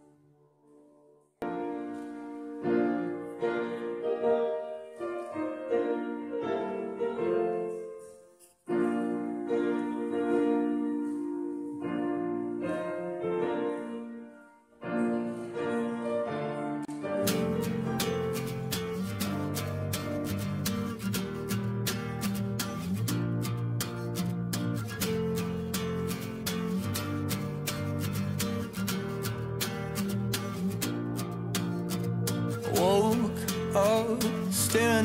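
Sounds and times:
piano music: 0.0s - 35.0s
guitar strumming: 16.9s - 35.0s.

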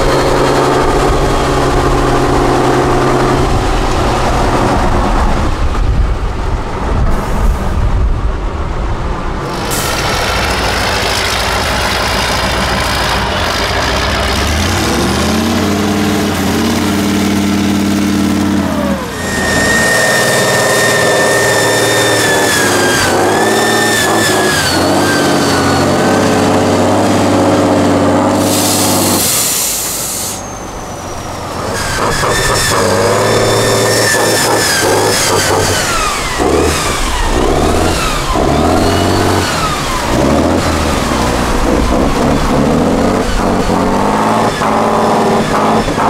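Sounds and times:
diesel engine revving hard: 0.0s - 6.0s, 9.4s - 46.0s
high whine: 9.3s - 46.0s
short hiss: 28.4s - 30.5s.

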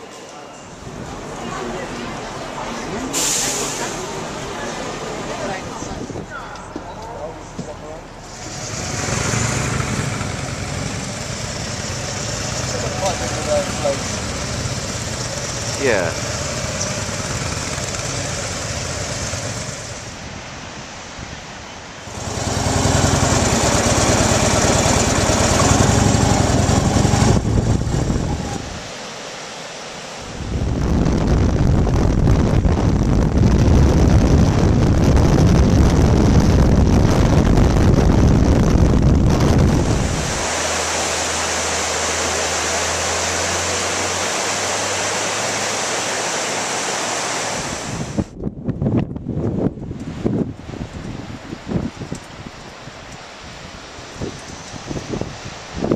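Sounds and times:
wind rushing over microphone: 5.4s - 6.4s, 8.3s - 28.9s, 30.2s - 46.4s, 47.0s - 55.9s
river rapids rushing: 8.2s - 20.3s, 22.0s - 30.4s, 39.7s - 48.2s
motorcycles running: 8.3s - 20.1s, 22.1s - 28.5s.

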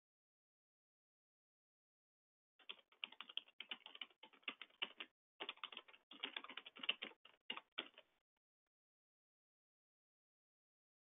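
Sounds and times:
computer keyboard typing: 2.6s - 8.1s.

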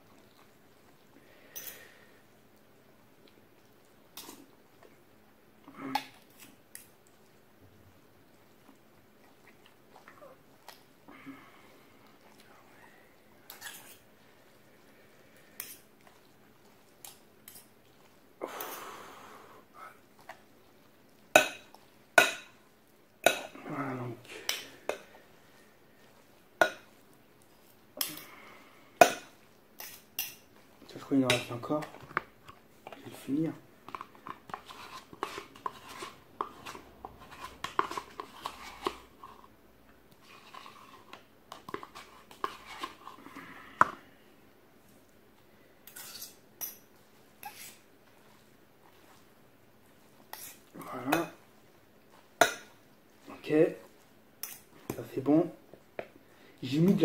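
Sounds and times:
pasta stirring sounds: 0.0s - 57.0s
metal utensil scraping plastic tub: 33.9s - 39.4s.

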